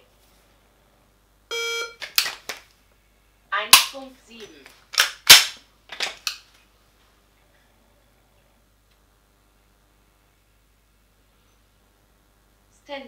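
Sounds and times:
electronic beep: 1.5 - 2.0.

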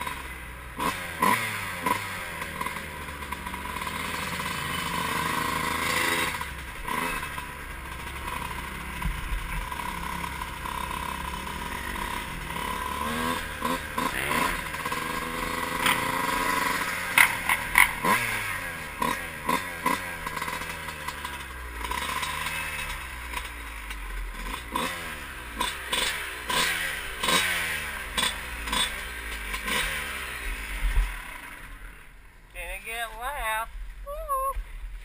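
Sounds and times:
dirt bike engine revving: 0.0 - 33.6.

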